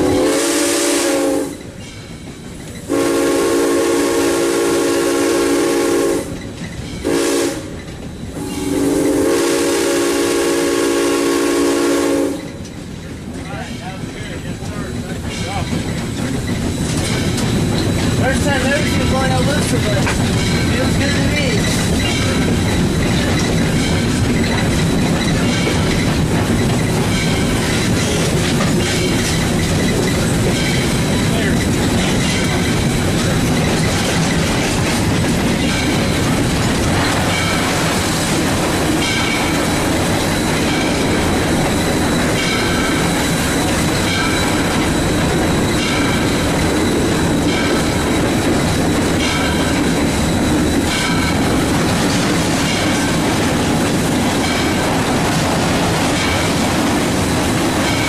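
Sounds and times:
steam whistle blasts: 0.0 - 1.6, 2.9 - 6.4, 7.1 - 7.7, 8.4 - 12.4
locomotive rumbling: 0.0 - 58.0
train wheels on track: 0.0 - 58.0.

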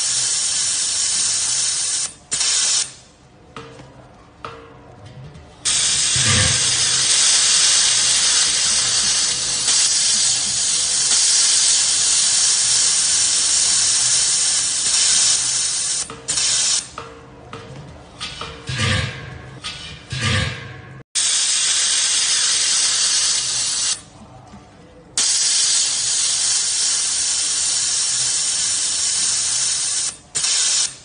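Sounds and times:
laser welder hissing: 0.0 - 3.0, 5.7 - 17.0, 21.2 - 24.1, 25.2 - 31.0.

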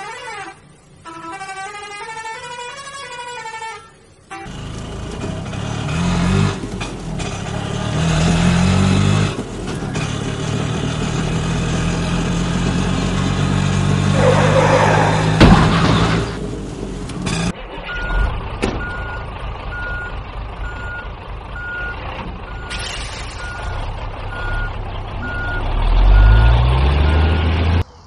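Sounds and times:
heavy truck engine revving: 4.4 - 28.0
sharp bang: 15.2 - 16.4.

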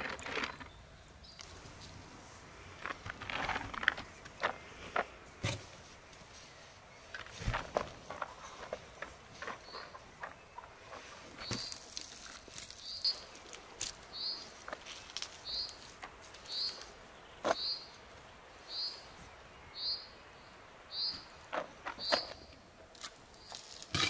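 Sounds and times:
bird chirping: 8.1 - 11.9, 12.7 - 13.5, 14.1 - 14.6, 15.4 - 18.0, 18.6 - 22.6.

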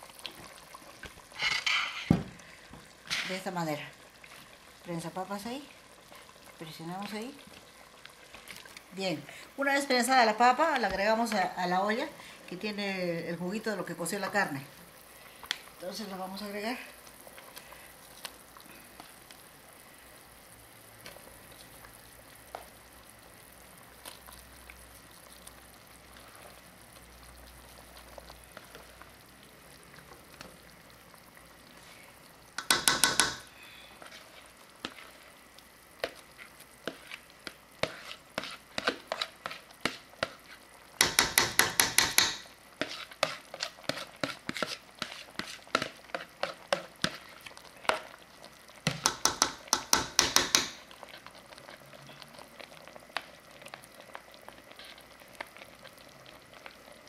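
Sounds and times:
metal spoon scraping a pot: 1.4 - 2.1, 37.8 - 39.6, 40.2 - 47.3.

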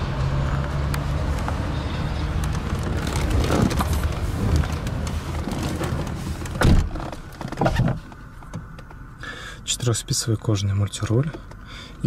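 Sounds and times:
outdoor background noise: 0.0 - 12.0
car door shutting: 2.9 - 8.7.

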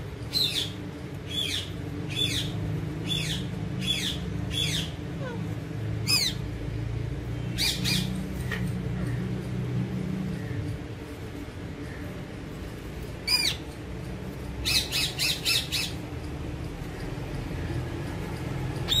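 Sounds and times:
parakeets squawking: 0.3 - 6.5, 7.5 - 9.2, 13.2 - 13.8, 14.6 - 16.0.

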